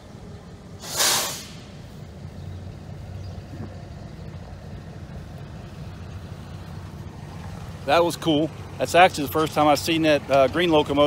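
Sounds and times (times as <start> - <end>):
diesel locomotives idling: 0.0 - 11.0
air brakes hissing: 0.7 - 2.1.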